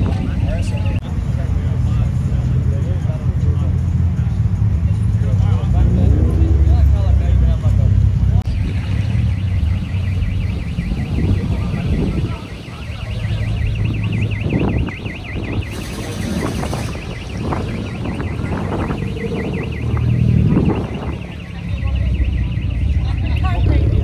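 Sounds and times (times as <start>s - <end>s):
low rumble of car engines: 0.0s - 24.0s
car alarm siren warbling: 8.4s - 24.0s.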